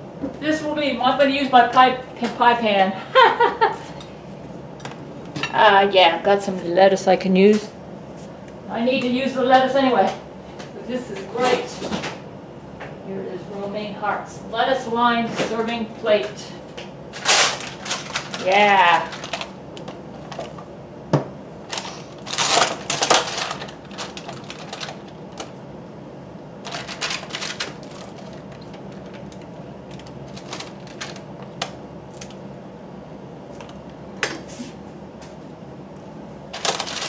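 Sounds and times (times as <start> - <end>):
plastic container crinkling: 17.2 - 20.6, 21.7 - 25.5, 26.6 - 32.4, 36.5 - 37.0.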